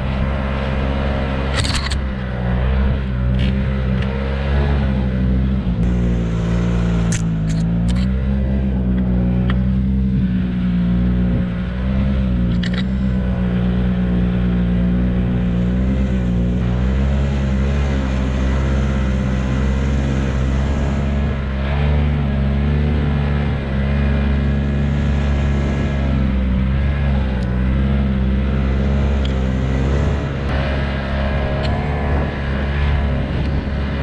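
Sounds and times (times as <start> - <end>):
snowmobile engine running: 0.0 - 34.0
brief clicks: 1.5 - 2.0.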